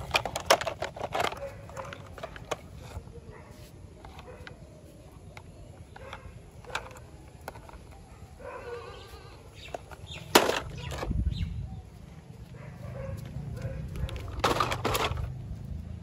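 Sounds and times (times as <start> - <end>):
camera handling rumble: 0.0 - 3.1, 13.9 - 15.4.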